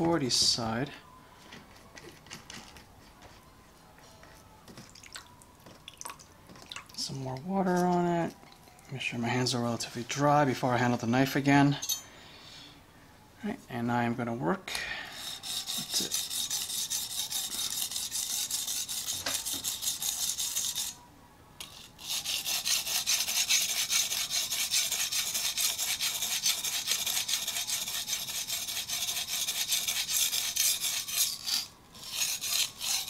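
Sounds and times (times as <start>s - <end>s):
knife scraping on whetstone: 15.1s - 21.0s, 21.6s - 33.0s.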